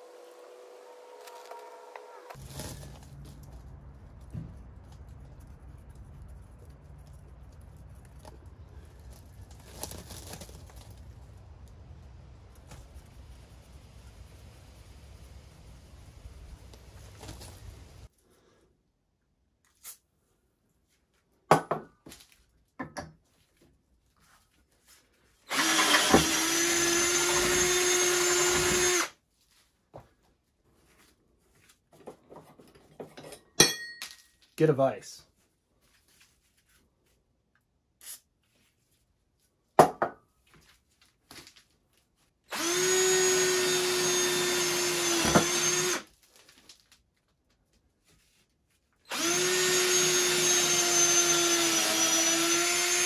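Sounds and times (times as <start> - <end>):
cordless drill whining: 0.6 - 2.4, 25.5 - 29.2, 42.5 - 46.1, 49.1 - 53.0.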